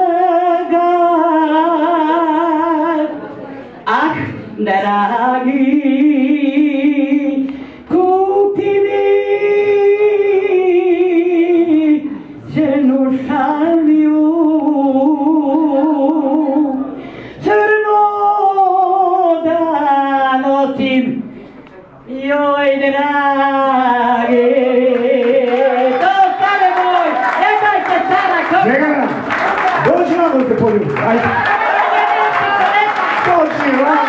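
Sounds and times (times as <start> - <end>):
breaths: 7.4 - 7.9, 12.0 - 12.5, 16.8 - 17.5, 21.2 - 21.8
solo voice singing unaccompanied: 22.1 - 26.4.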